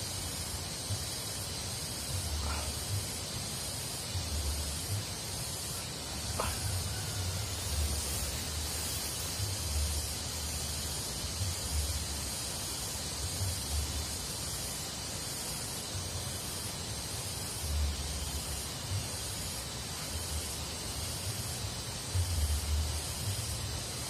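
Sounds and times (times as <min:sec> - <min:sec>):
high outdoor hiss: 0:00.0 - 0:24.0.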